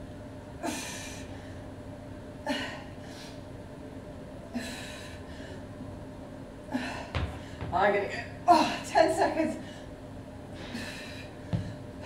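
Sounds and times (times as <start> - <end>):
woman breathing hard: 4.5 - 5.7, 6.7 - 7.6, 10.6 - 11.8.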